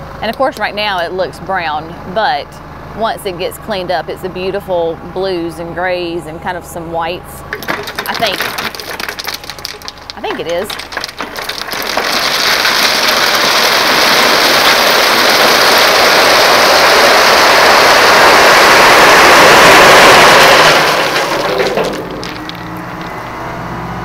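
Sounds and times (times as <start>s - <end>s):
rocks rattling out of truck bed: 7.4s - 23.5s.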